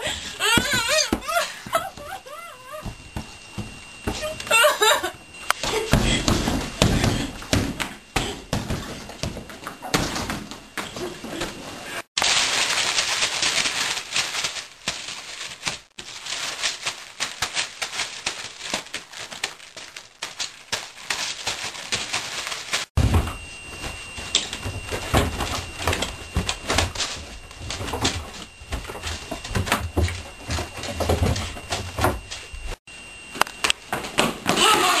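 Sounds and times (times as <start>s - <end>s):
thumps and bangs in a room: 5.4s - 11.8s, 22.9s - 32.8s.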